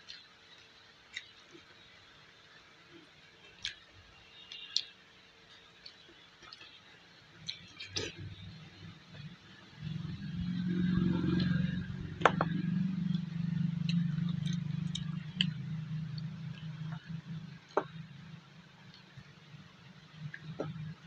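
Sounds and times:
person chewing: 0:07.4 - 0:08.6, 0:13.1 - 0:17.1
low steady drone: 0:07.5 - 0:21.0.

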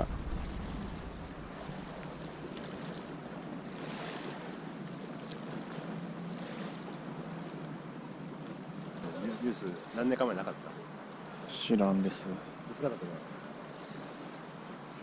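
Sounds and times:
wind on microphone: 0:00.0 - 0:04.4
sea washing against shore: 0:00.0 - 0:15.0.

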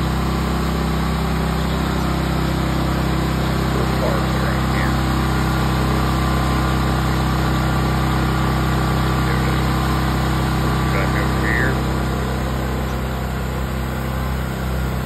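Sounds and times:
pressure washer engine running: 0:00.0 - 0:15.0.

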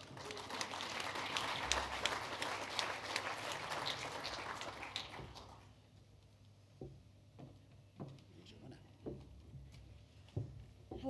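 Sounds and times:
audience applauding: 0:00.0 - 0:05.7.

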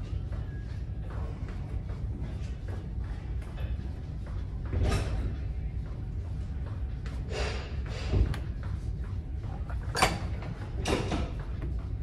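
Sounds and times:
metal machine clattering and creaking: 0:04.6 - 0:05.5, 0:09.4 - 0:11.8.

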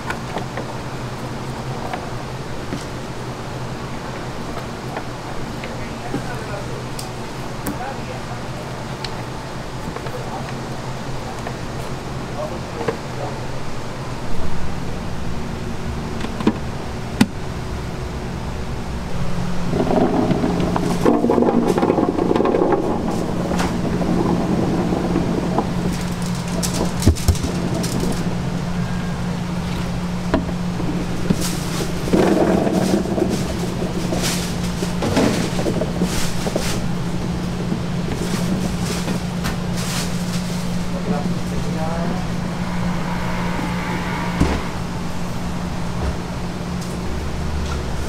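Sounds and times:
steady machine hum: 0:00.0 - 0:48.0
hot dogs shifted in plastic trays: 0:31.3 - 0:40.9.

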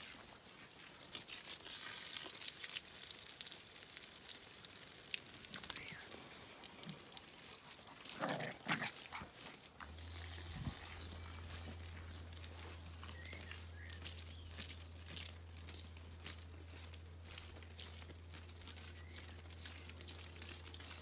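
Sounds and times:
low steady hum: 0:05.2 - 0:21.0
dogs scuffling on grass: 0:05.6 - 0:21.0.

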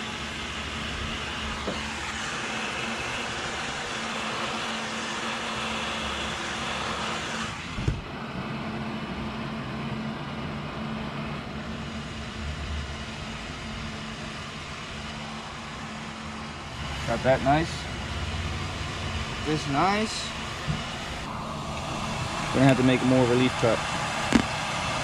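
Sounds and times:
heat gun blowing hot air: 0:00.0 - 0:07.9.

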